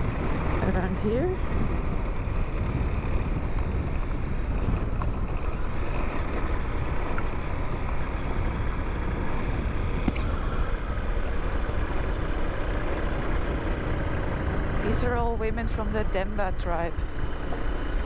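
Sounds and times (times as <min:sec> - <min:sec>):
tyres on gravel: 0:00.0 - 0:14.2
motorcycle engine cruising: 0:00.0 - 0:18.0.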